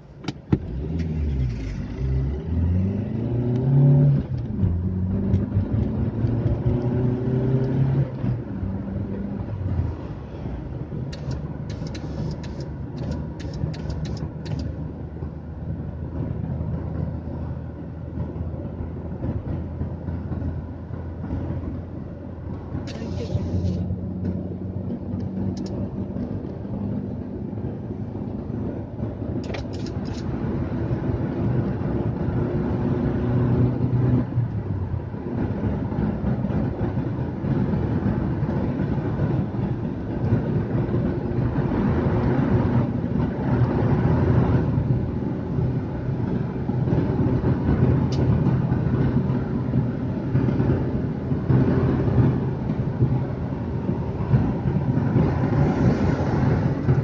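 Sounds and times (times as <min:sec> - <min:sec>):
car interior engine drone: 0:00.0 - 0:57.0
short clicks: 0:11.1 - 0:14.7.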